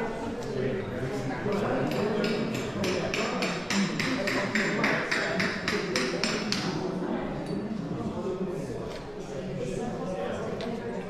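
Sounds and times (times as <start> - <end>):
small hammer tapping on tile: 1.5 - 6.7.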